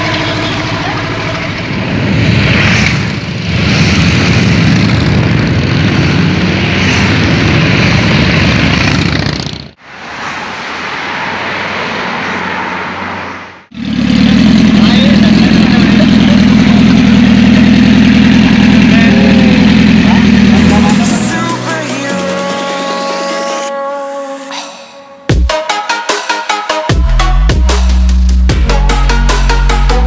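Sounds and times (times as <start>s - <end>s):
passing vehicle engines: 0.0s - 23.7s.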